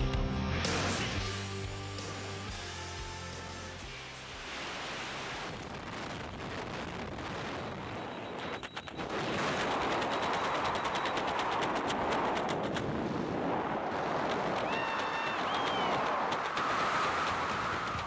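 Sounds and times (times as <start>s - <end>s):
crackling wind buffeting pops: 5.4s - 18.0s
wind rushing over microphone: 5.4s - 18.0s.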